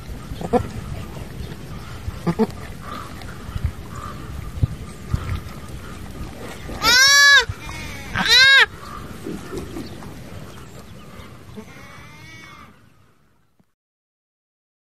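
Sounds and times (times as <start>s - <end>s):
goat bleating: 2.2s - 2.5s, 6.8s - 8.7s, 11.6s - 12.7s.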